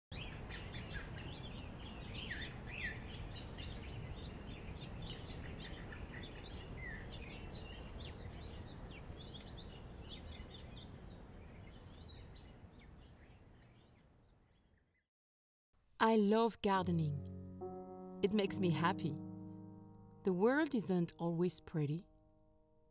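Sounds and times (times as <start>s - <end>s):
small birds chirping: 0.1s - 15.0s.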